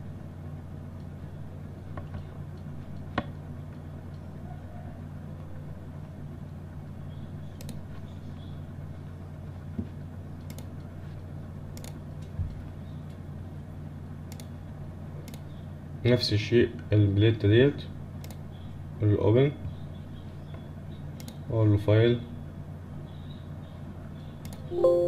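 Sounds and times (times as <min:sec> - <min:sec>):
low electrical hum: 0:00.0 - 0:25.0
computer mouse clicks: 0:07.6 - 0:07.8, 0:10.4 - 0:10.9, 0:11.8 - 0:12.0, 0:14.3 - 0:14.5, 0:15.2 - 0:15.5, 0:21.2 - 0:21.4.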